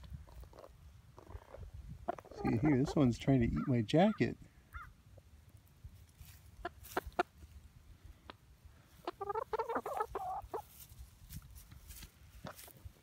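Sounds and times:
hen clucking: 0.3s - 5.0s, 6.3s - 7.6s, 8.2s - 10.9s.

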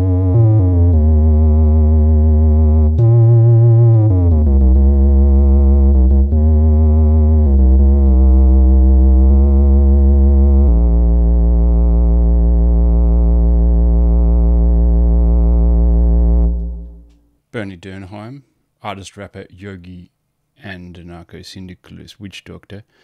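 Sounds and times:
synthesizer bass notes: 0.0s - 17.2s.

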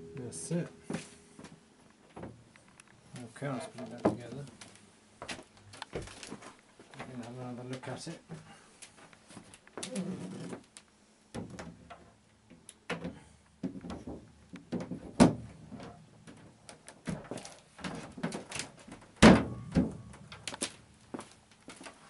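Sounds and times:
wooden knocks and thumps: 2.1s - 2.4s, 11.4s - 20.0s.

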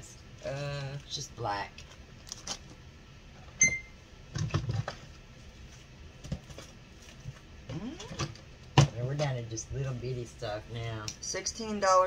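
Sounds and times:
high ringing tone: 3.6s - 4.0s
items rustling and clattering in bin: 4.3s - 7.5s.

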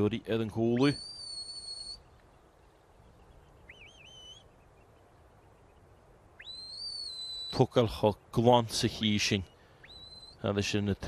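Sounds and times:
shepherd's whistle: 0.8s - 2.0s, 9.9s - 10.4s.

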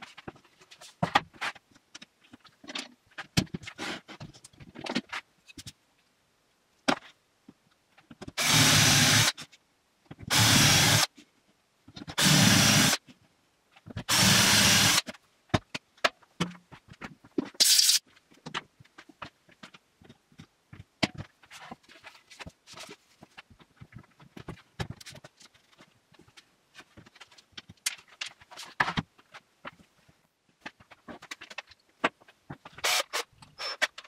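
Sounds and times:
cordless drill boring into wood: 8.4s - 9.3s, 10.3s - 11.1s, 12.2s - 13.0s, 14.1s - 15.0s, 32.8s - 33.8s
handling knocks and clicks: 15.1s - 32.8s.

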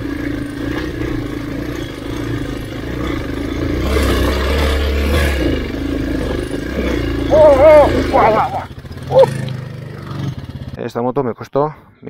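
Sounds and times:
motorcycle engine running: 0.0s - 10.8s.

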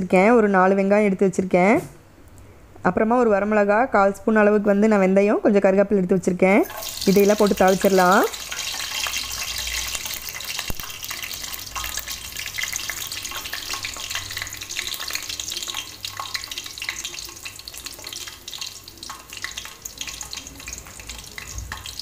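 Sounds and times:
spices sizzling in hot oil: 6.6s - 22.0s.

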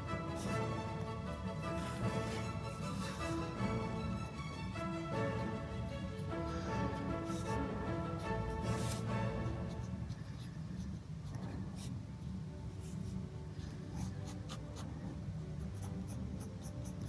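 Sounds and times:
pen scratching on paper: 8.7s - 10.5s, 15.8s - 17.0s.

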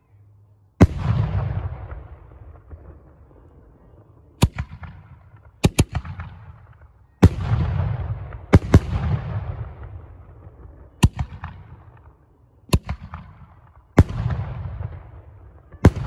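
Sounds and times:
firework bangs: 4.4s - 12.2s.

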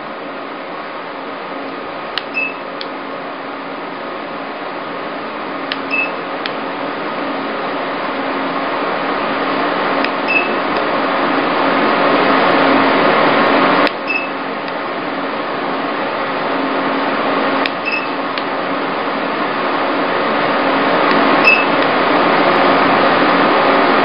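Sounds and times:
short high beeps: 2.3s - 2.6s, 5.9s - 6.2s, 10.3s - 10.6s, 14.1s - 14.4s, 17.8s - 18.2s, 21.4s - 21.8s.

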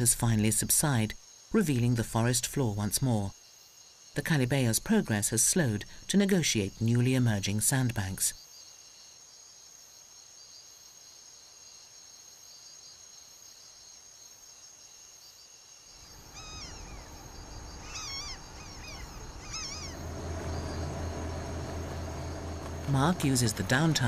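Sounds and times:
insects trilling: 14.8s - 24.0s
low engine hum: 16.0s - 24.0s
short chirping calls: 16.0s - 24.0s.

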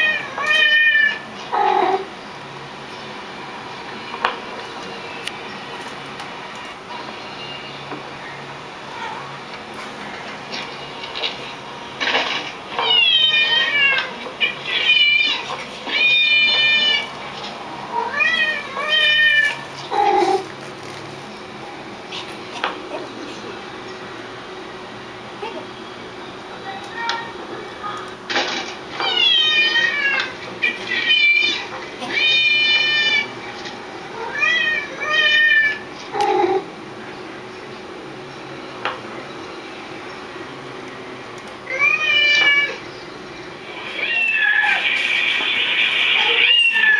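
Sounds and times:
cats meowing: 0.0s - 2.1s, 8.8s - 9.4s, 12.8s - 20.5s, 28.9s - 33.4s, 34.1s - 36.7s, 41.6s - 42.8s, 43.7s - 46.9s.

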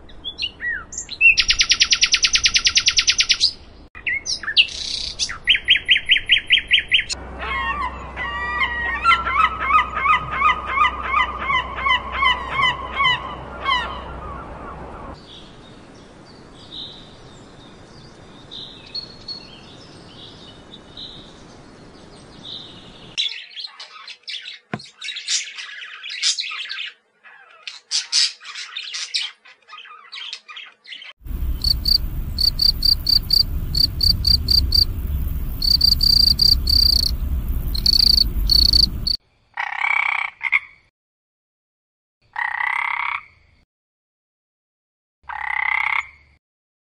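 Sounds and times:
crickets chirping: 31.2s - 39.2s
low rumble: 31.2s - 39.2s
faint high calls: 31.3s - 39.2s.

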